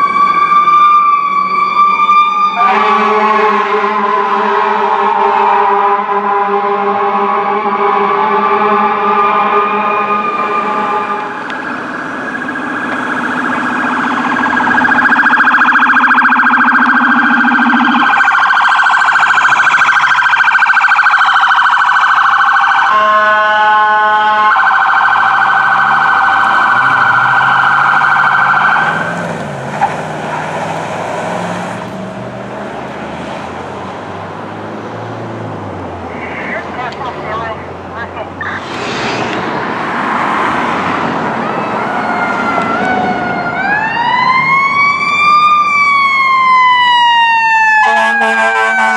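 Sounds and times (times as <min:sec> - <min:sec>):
warbling electronic siren: 0:00.0 - 0:06.6, 0:07.2 - 0:29.2, 0:41.4 - 0:48.9
passing vehicle engines: 0:00.0 - 0:48.9
fire engine air horns: 0:02.4 - 0:11.6, 0:17.8 - 0:29.1, 0:36.0 - 0:37.6, 0:46.9 - 0:48.9
steady electronic horn tone: 0:02.6 - 0:11.3, 0:22.9 - 0:24.6, 0:47.8 - 0:48.9.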